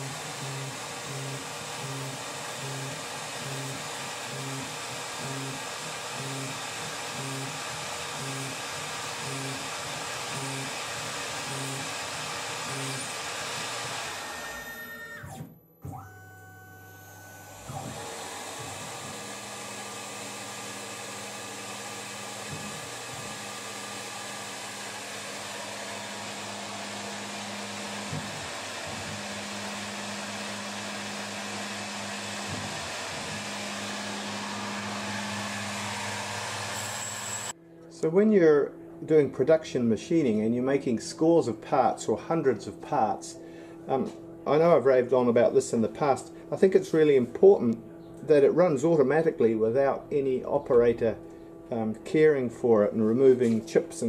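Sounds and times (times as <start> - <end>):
lathe machine whir: 0.0 - 16.0, 16.9 - 37.6.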